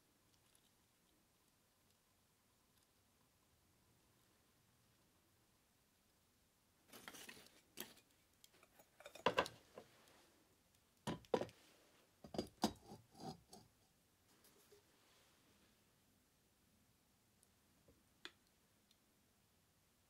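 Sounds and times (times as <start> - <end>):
kettle and pan clinking on trivets: 8.7 - 9.6.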